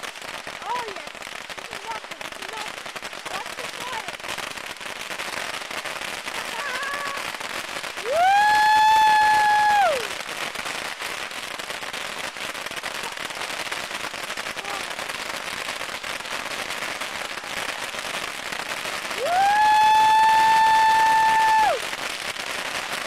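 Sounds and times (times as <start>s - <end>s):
bottle rockets hissing and crackling: 0.0s - 23.0s.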